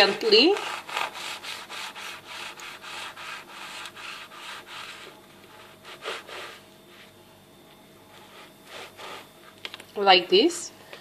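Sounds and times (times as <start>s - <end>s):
knife sawing through pastry crust: 0.0s - 7.1s, 8.1s - 9.4s.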